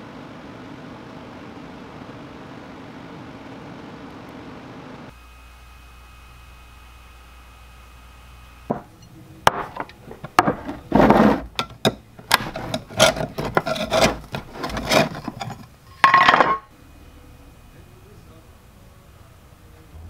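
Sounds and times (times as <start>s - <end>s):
metal scraping on can rim: 10.0s - 16.7s.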